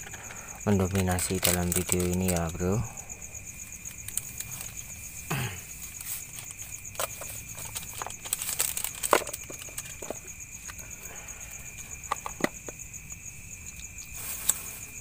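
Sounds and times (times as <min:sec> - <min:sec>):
night insects trilling: 0:00.0 - 0:15.0
paper wrapper crinkling: 0:00.7 - 0:02.8, 0:05.8 - 0:10.8
sharp crackle: 0:03.6 - 0:10.9, 0:13.6 - 0:15.0.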